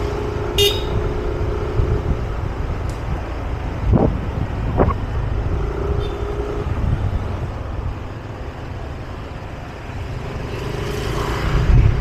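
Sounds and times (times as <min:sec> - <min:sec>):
road noise: 0:00.0 - 0:12.0
wind buffeting microphone: 0:00.9 - 0:08.3, 0:11.4 - 0:12.0.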